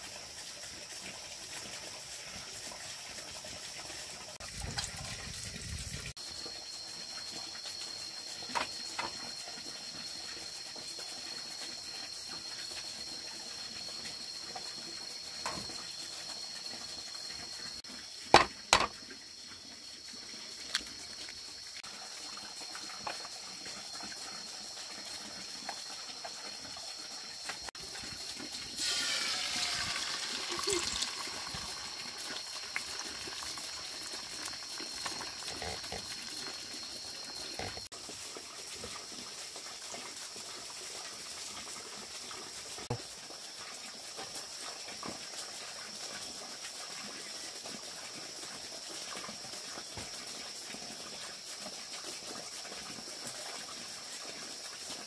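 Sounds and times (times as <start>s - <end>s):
eggs sizzling in frying pan: 24.6s - 38.8s.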